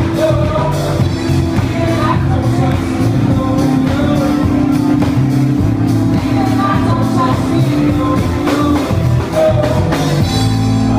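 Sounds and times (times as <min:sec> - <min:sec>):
electric guitar: 0:00.0 - 0:10.9
live rock band playing: 0:00.0 - 0:10.9
low bass notes: 0:00.0 - 0:10.9
person singing: 0:00.0 - 0:10.9.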